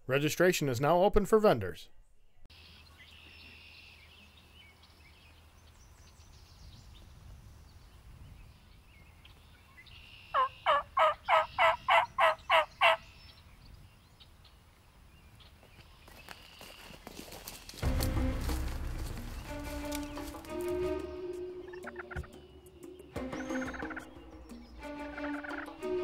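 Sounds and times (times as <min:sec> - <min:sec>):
faint birdsong: 0:01.6 - 0:26.0
turkey calling: 0:10.0 - 0:13.1, 0:21.6 - 0:25.8.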